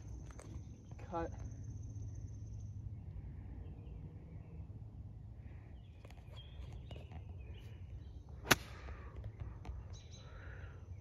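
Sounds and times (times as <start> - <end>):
faint bird chirps: 0.0 - 11.0
golf club striking ball: 8.4 - 8.9.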